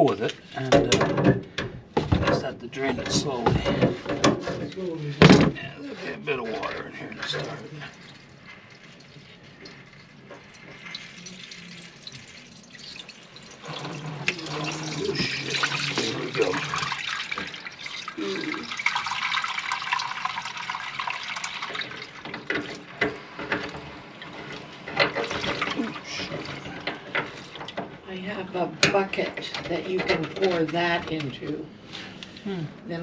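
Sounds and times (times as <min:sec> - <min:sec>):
water pouring into a pan: 0:06.4 - 0:23.7.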